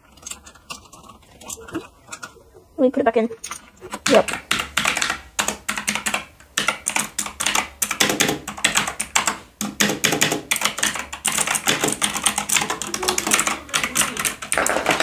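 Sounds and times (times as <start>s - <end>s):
clicky keyboard typing: 3.9s - 15.0s.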